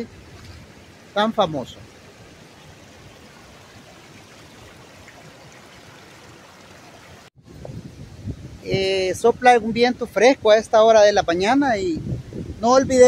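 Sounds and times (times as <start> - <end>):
river water rushing over rocks: 0.0 - 7.6.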